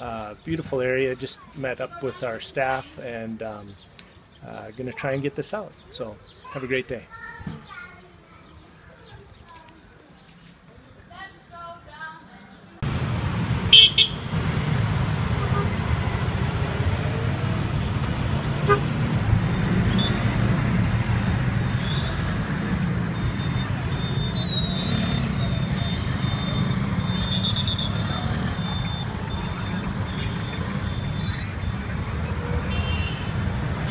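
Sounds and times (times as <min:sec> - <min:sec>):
traffic engine rumble: 0:12.8 - 0:33.9
high-pitched horn toots: 0:13.7 - 0:14.3.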